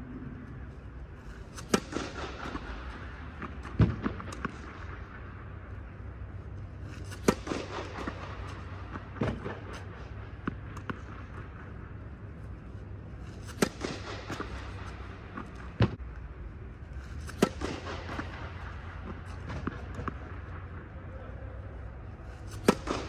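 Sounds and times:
low hum: 0.0s - 23.0s
tennis racket striking balls: 1.3s - 5.2s, 6.9s - 12.0s, 13.1s - 16.0s, 17.1s - 20.7s, 22.4s - 23.0s
balls bouncing: 1.6s - 5.8s, 17.2s - 20.8s.

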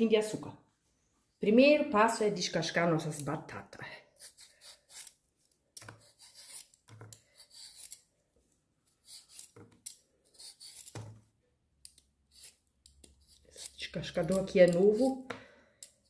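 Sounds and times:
peeler scraping potato: 4.2s - 5.2s, 5.8s - 8.1s, 8.9s - 11.1s, 11.8s - 16.0s.

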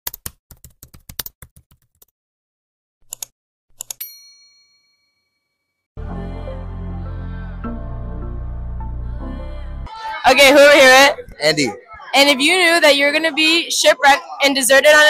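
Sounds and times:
music: 6.0s - 10.4s.

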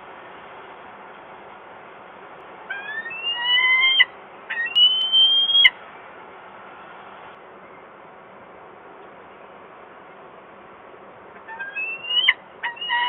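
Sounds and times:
faint steady hiss: 0.0s - 13.0s
falcon wailing calls: 2.7s - 5.7s, 11.4s - 13.0s.

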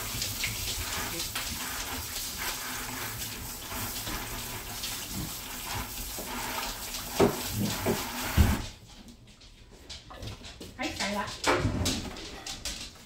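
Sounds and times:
tap running into sink: 0.0s - 8.7s.

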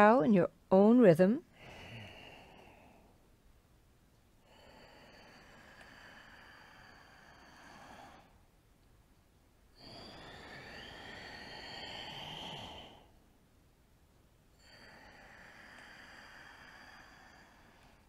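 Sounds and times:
woman breathing deeply: 1.5s - 3.2s, 4.4s - 8.5s, 9.7s - 13.3s, 14.5s - 18.0s.

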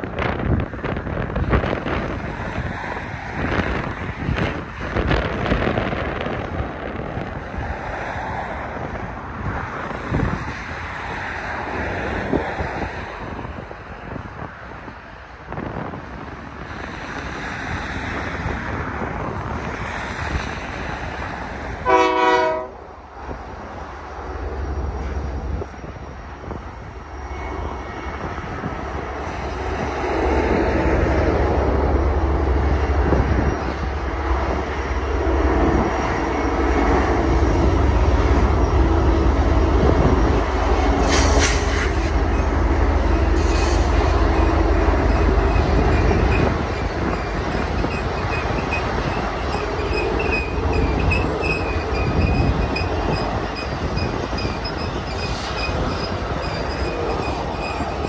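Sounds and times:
diesel locomotive engine rumble: 0.0s - 58.0s
train horn blast: 21.8s - 22.9s
high wheel squeals: 43.2s - 58.0s.

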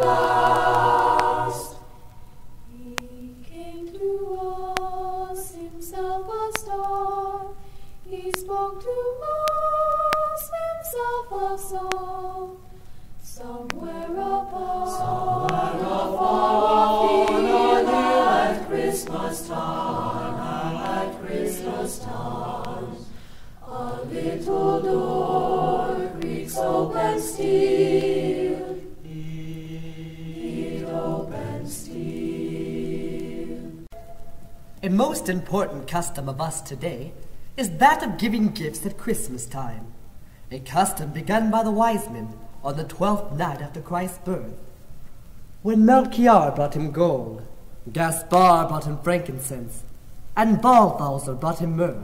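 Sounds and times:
choir singing a cappella: 0.0s - 34.4s.

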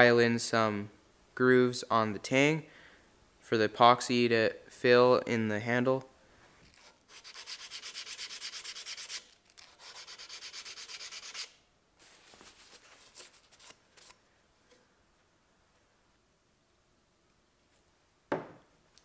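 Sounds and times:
file strokes on steel blade: 6.7s - 11.6s.

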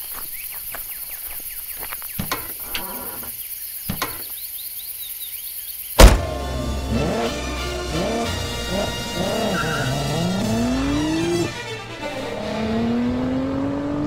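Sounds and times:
crickets chirring: 0.0s - 6.1s
car door slamming: 6.0s - 6.4s.

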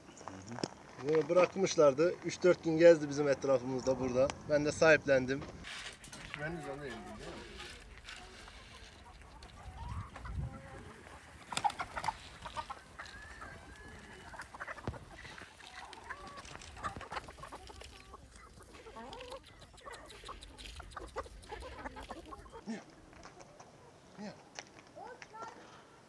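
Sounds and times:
hens clucking: 5.4s - 24.4s.

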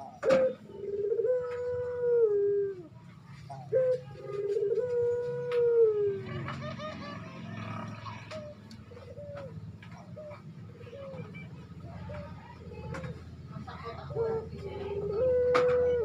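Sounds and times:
dove cooing: 0.0s - 16.0s.

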